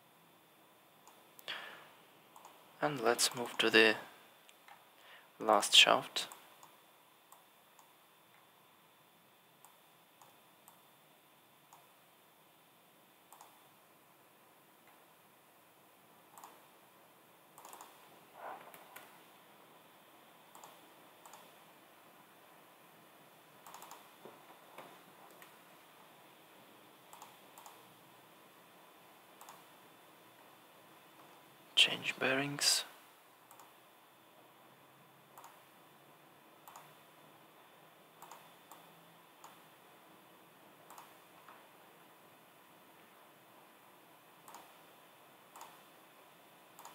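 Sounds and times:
faint room hiss: 0:00.0 - 0:46.9
computer mouse clicks: 0:01.0 - 0:01.5, 0:02.3 - 0:02.6, 0:06.3 - 0:08.5, 0:09.6 - 0:10.8, 0:11.7 - 0:11.9, 0:13.3 - 0:13.6, 0:16.3 - 0:16.6, 0:17.6 - 0:19.2, 0:20.5 - 0:21.5, 0:23.6 - 0:24.1, 0:27.1 - 0:27.9, 0:29.4 - 0:29.7, 0:33.5 - 0:33.8, 0:35.3 - 0:35.6, 0:36.6 - 0:37.0, 0:38.2 - 0:39.6, 0:40.8 - 0:41.6, 0:44.4 - 0:44.8, 0:45.5 - 0:45.8.

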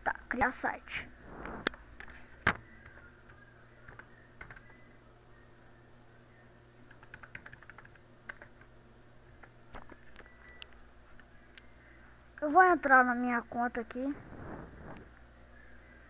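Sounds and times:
computer keyboard typing: 0:03.8 - 0:04.7, 0:06.8 - 0:08.7.

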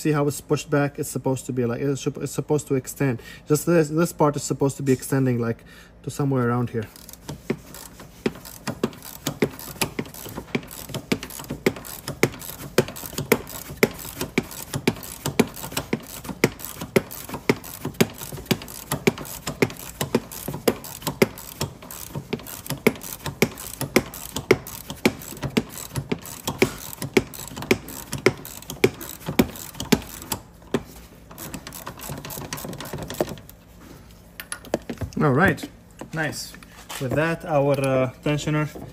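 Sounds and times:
ratchet wrench clicking: 0:06.9 - 0:30.5, 0:31.3 - 0:33.5.

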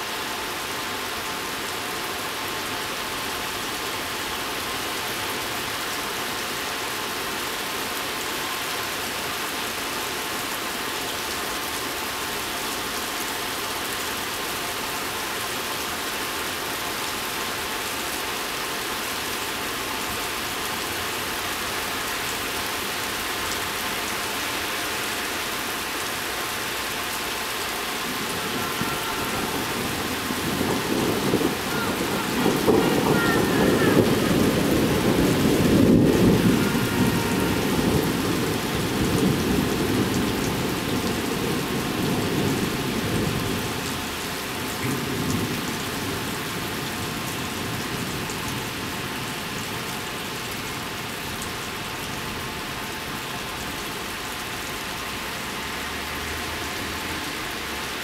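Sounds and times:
heavy rain pattering on stone: 0:00.0 - 0:58.0
thunder rumbling: 0:28.0 - 0:43.8.

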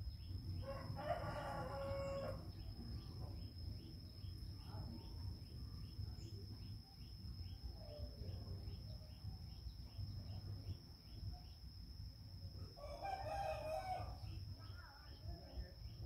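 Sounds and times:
insect drone with chirps: 0:00.0 - 0:16.0
rooster crowing: 0:00.6 - 0:02.5, 0:12.8 - 0:14.3.

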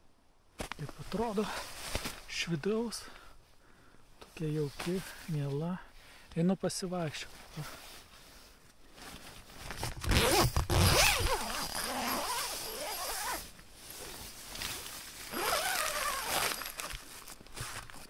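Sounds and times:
tent zipper being pulled: 0:09.6 - 0:18.0.

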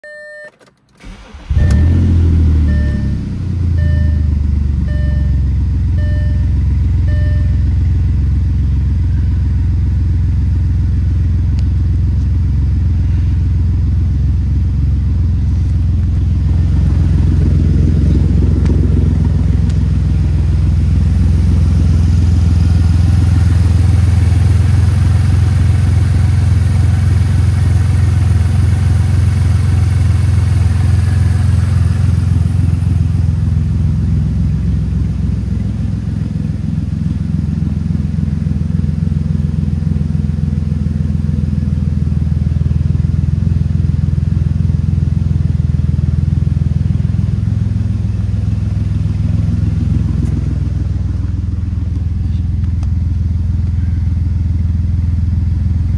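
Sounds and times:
dashboard warning chime beeping: 0:00.0 - 0:07.8
car engine starting and idling: 0:00.0 - 0:55.9.

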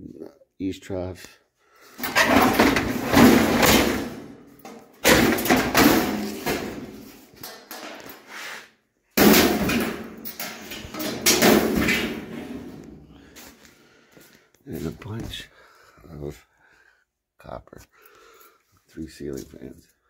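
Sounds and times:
sheet metal clattering bangs: 0:02.0 - 0:08.2, 0:09.2 - 0:13.1.

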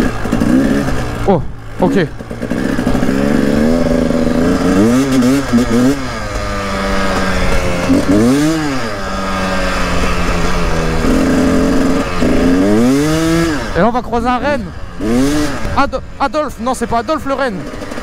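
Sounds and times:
motorcycle engine revving: 0:00.0 - 0:18.0.

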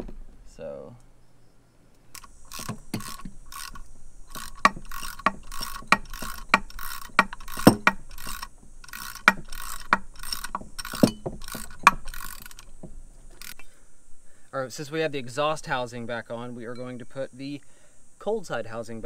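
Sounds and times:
ratchet wrench clicking: 0:02.1 - 0:13.7.

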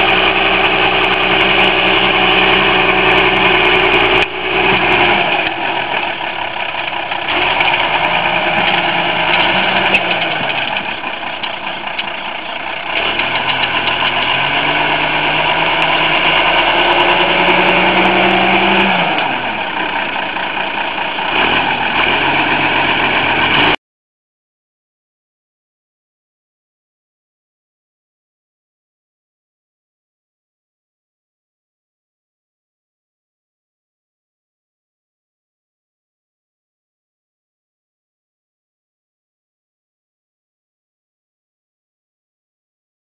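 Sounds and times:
tractor diesel engine revving: 0:00.0 - 0:23.8.

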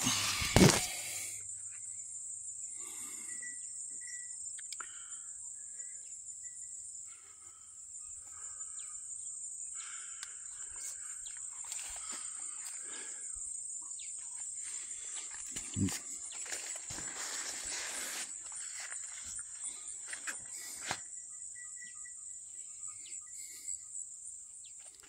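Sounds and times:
high-pitched insect drone: 0:00.0 - 0:25.0
leaves and vines rustling: 0:14.5 - 0:21.0.

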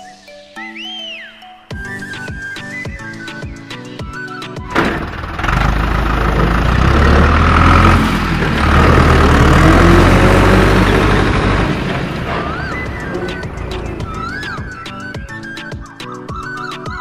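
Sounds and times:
tractor engine rumble: 0:04.7 - 0:15.1.

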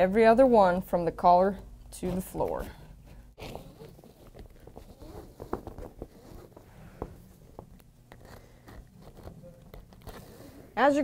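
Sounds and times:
rope rubbing and rustling: 0:02.2 - 0:10.7.

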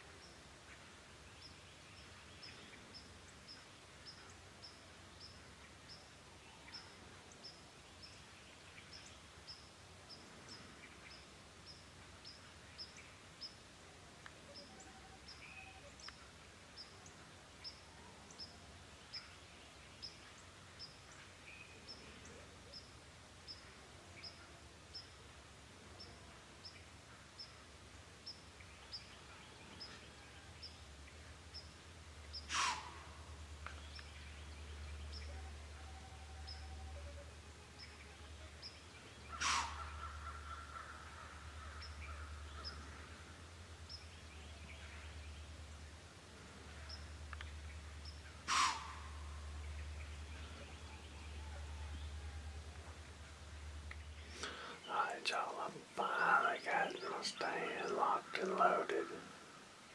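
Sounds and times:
faint bird calls: 0:14.4 - 0:59.9.

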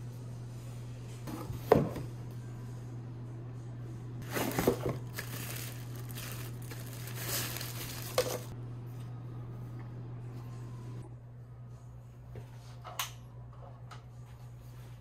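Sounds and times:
steady low hum: 0:00.0 - 0:15.0
plastic bag crinkling: 0:04.2 - 0:08.5.

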